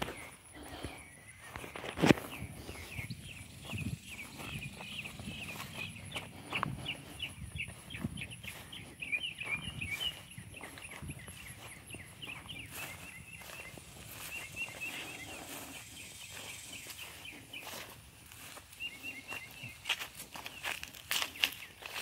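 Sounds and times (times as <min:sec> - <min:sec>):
footsteps through grass: 0:00.0 - 0:22.0
small birds chirping: 0:00.0 - 0:22.0
high insect trill: 0:13.3 - 0:18.8.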